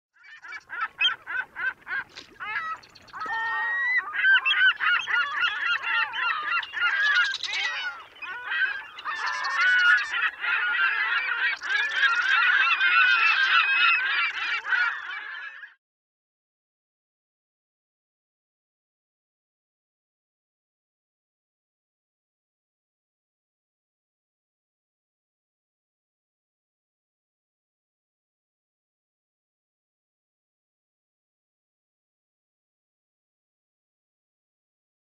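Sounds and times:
flock of birds calling: 0:00.2 - 0:15.8.

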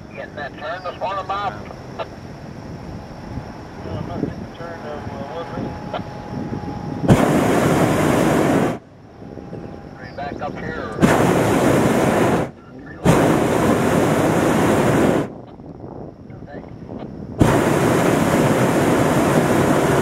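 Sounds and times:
propane burner blasts: 0:01.3 - 0:20.0
faint voices: 0:09.7 - 0:11.1, 0:12.5 - 0:13.1.

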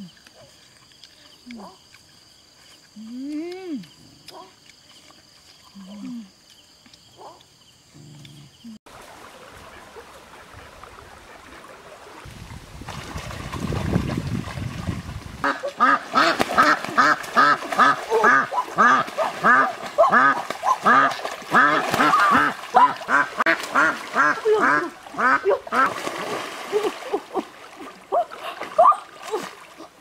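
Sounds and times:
duck quacking: 0:15.4 - 0:25.9.

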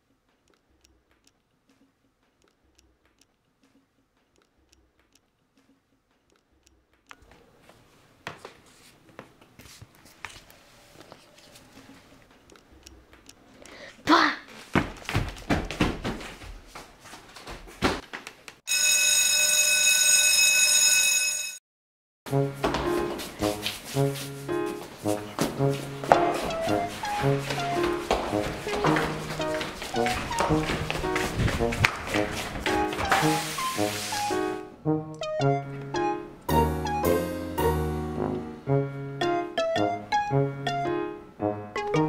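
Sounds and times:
knocks and bumps: 0:14.7 - 0:16.6
electric school bell ringing: 0:18.7 - 0:21.6.

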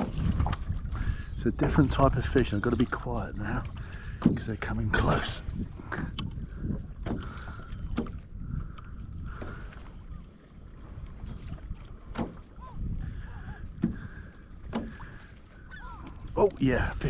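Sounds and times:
waves lapping against kayak hull: 0:00.0 - 0:17.0
wind on microphone: 0:00.0 - 0:17.0
seabirds calling: 0:00.8 - 0:17.0.

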